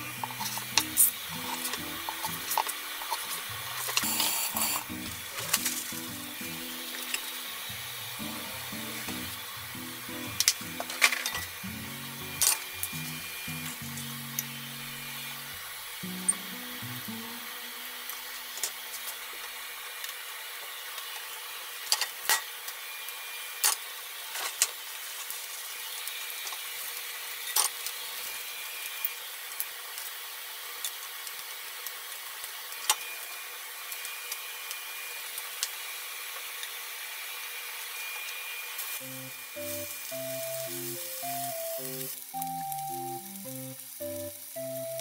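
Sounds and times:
oil sizzling in a frying pan: 0.0s - 45.0s
utensils tapping a pan: 0.2s - 7.3s.

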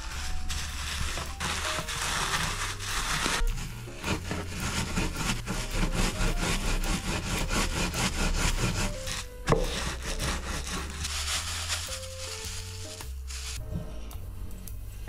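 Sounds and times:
plastic bag crinkling: 0.0s - 3.5s, 10.8s - 13.6s
rolling pin crushing cookies: 0.0s - 13.6s.

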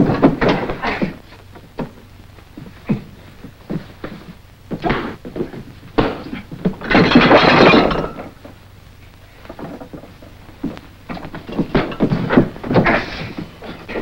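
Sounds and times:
scuffling and thumps: 0.0s - 8.5s, 9.4s - 14.0s.

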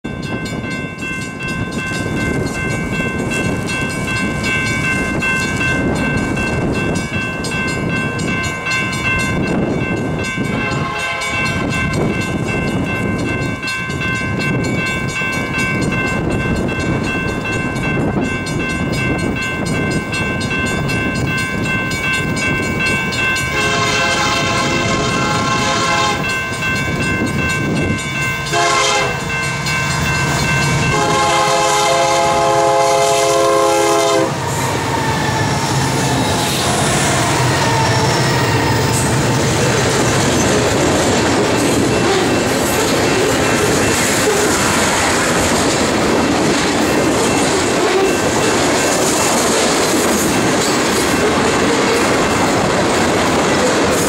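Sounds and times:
wind buffeting microphone: 0.1s - 54.0s
locomotive air horn: 10.6s - 11.6s, 23.5s - 26.3s, 28.5s - 29.3s, 30.9s - 34.5s.

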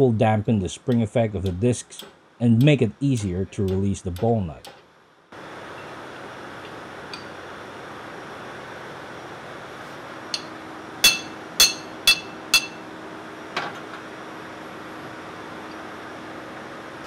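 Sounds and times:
hammer striking metal spanner: 10.3s - 12.9s.

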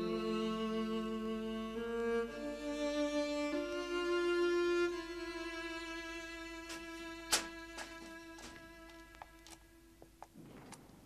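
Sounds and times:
soft string music: 0.0s - 10.2s
faint clicks: 6.7s - 11.0s.

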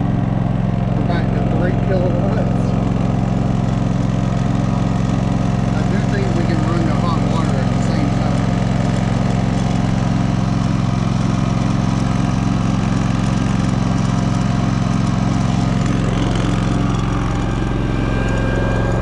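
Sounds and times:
generator engine running: 0.0s - 19.0s.

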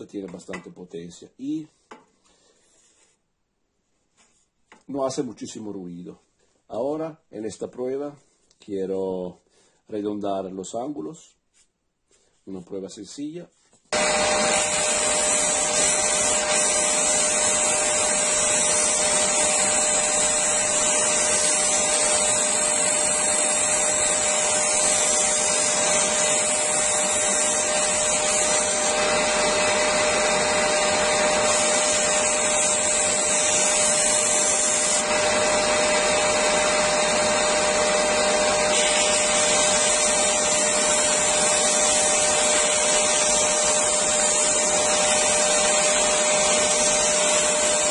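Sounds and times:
wood sanding hiss: 13.9s - 47.9s
disc sander motor humming: 14.0s - 47.9s
vacuum extractor running: 14.0s - 47.9s.

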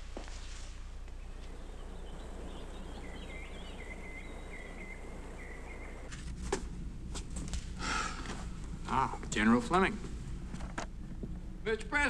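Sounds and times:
low outdoor background hum: 0.0s - 12.0s
birds chirping: 0.7s - 7.1s.

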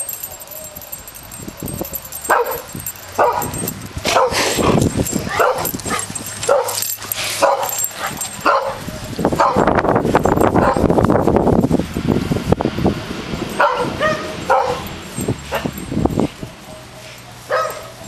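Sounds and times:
puppy barking and yipping: 0.0s - 9.7s, 13.6s - 18.0s.

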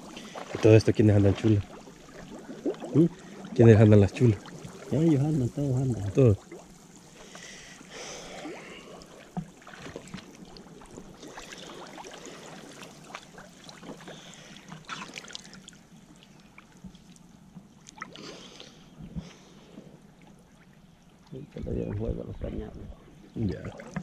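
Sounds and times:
water lapping and trickling: 0.0s - 24.0s.

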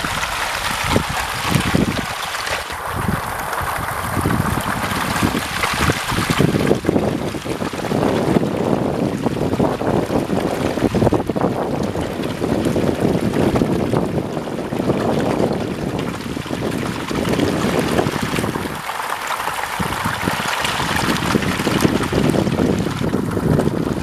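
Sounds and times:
fish thrashing and splashing: 0.0s - 24.0s.

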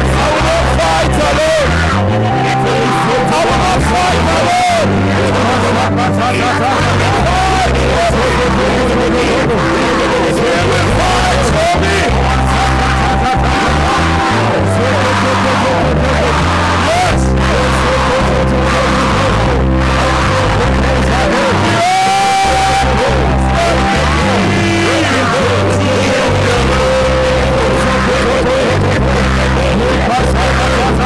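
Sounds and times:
deep bass chords: 0.0s - 31.0s
voices singing and calling out: 0.0s - 31.0s.

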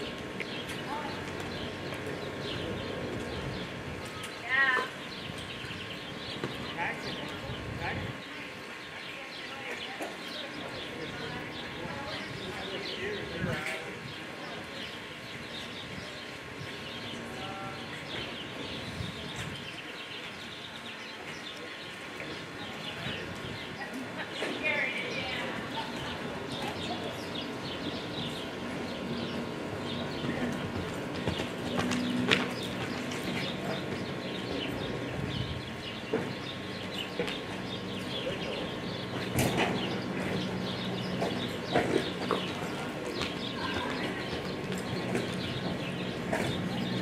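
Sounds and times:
small birds chirping: 0.0s - 47.0s
steady low hum: 0.0s - 47.0s
hooves on dirt: 23.1s - 47.0s.

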